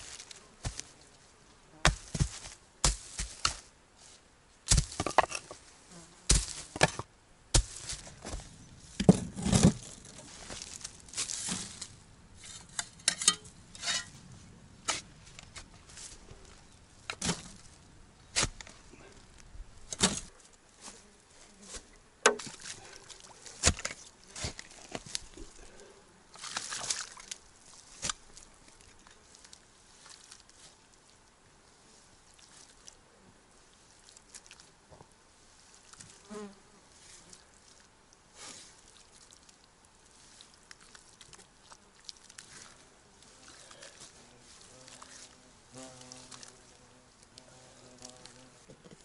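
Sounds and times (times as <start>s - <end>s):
shovel striking earth and stones: 0.0s - 0.9s, 1.8s - 3.7s, 4.7s - 5.6s, 6.3s - 14.2s, 14.8s - 16.2s, 17.0s - 17.7s, 18.3s - 18.9s, 19.9s - 20.3s, 21.7s - 22.8s, 23.6s - 25.4s, 28.0s - 28.3s.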